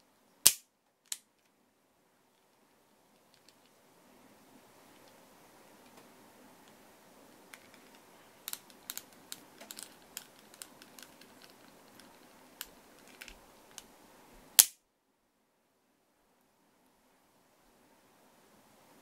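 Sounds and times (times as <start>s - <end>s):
toy revolver mechanism clicking: 7.6s - 13.9s.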